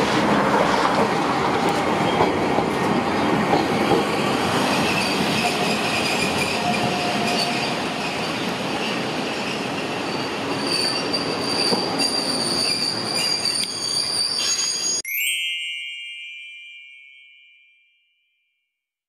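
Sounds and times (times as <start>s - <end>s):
rumble of rails: 0.0s - 14.9s
tram wheels squealing: 0.0s - 15.0s
bright chime: 13.4s - 18.7s.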